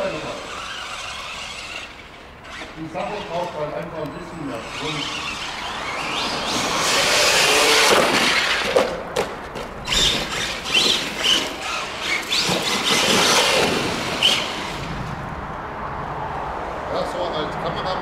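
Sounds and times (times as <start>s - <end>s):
high electric motor squeals: 0.0s - 8.7s, 9.8s - 14.8s
rc truck tyres and motor rushing: 0.0s - 18.0s.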